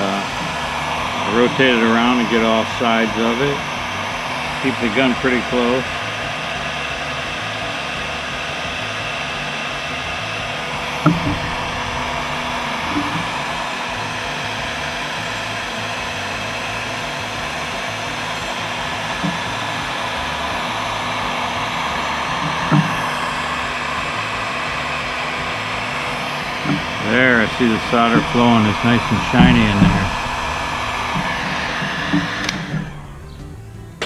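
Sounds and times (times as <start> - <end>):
heat gun blowing: 0.0 - 34.0.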